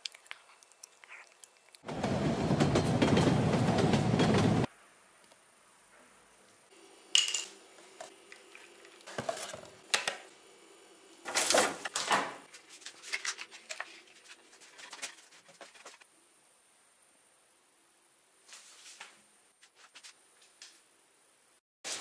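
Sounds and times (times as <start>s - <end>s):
faint steady hum: 12.5s - 21.6s.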